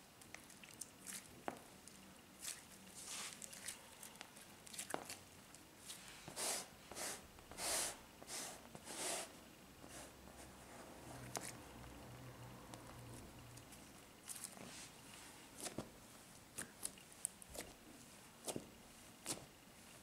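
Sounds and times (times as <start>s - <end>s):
slime squelching: 0.2s - 6.5s, 12.7s - 17.8s.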